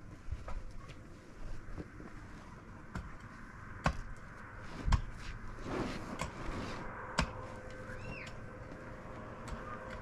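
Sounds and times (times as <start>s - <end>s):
rustling: 0.0s - 9.2s
rising and falling chirp: 7.7s - 8.6s.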